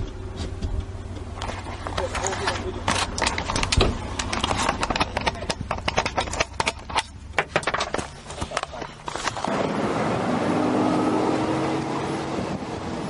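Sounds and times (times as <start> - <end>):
knocks and clattering in car: 3.4 - 8.5.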